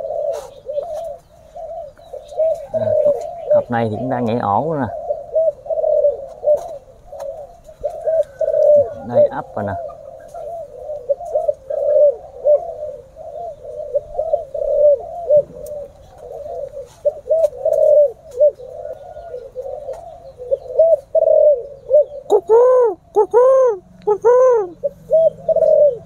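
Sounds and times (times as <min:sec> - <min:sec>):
doves cooing: 0:00.0 - 0:26.0.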